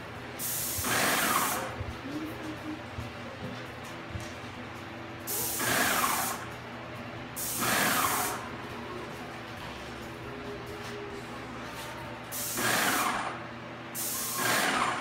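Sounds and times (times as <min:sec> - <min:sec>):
paint sprayer hissing: 0:00.0 - 0:03.0, 0:05.2 - 0:06.6, 0:07.4 - 0:08.5, 0:11.8 - 0:15.0
steady low hum: 0:00.0 - 0:15.0.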